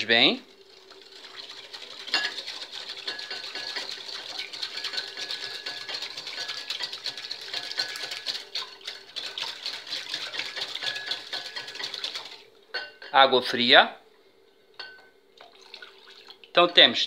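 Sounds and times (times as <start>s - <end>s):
whisk rattling in glass bowl: 0.7s - 12.4s.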